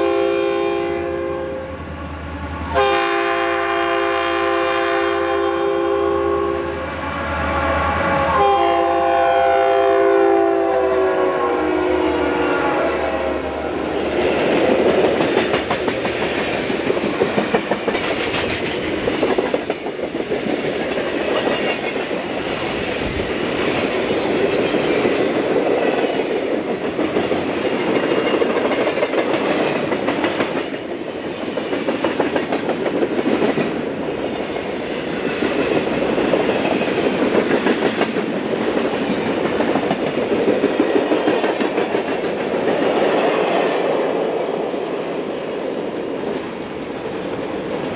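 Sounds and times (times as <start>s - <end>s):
train wheels clattering over rails: 14.1s - 44.0s.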